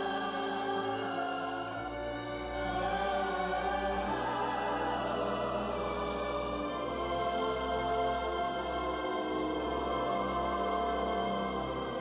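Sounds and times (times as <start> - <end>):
slow sustained background chords: 0.0 - 12.0.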